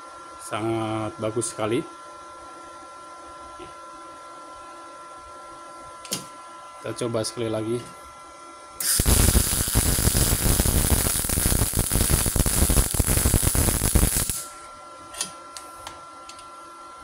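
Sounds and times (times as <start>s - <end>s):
welding arc crackling sizzle: 8.8s - 14.7s.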